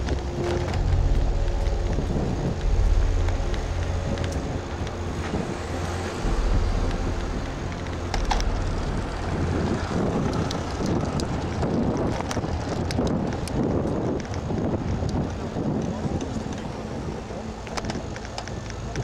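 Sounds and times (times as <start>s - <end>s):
car engine and road noise: 0.0s - 19.0s
wind noise on microphone: 0.0s - 19.0s.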